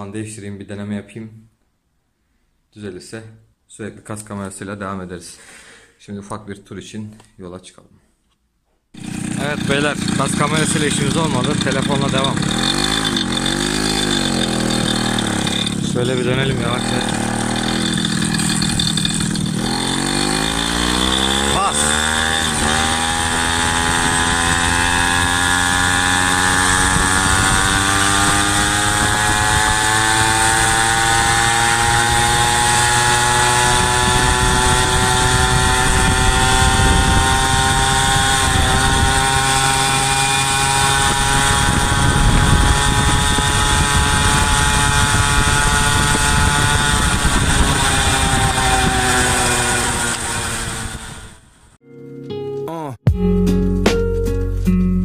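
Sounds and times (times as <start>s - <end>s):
moped engine running: 9.0s - 51.4s
wind and road noise: 10.2s - 51.8s.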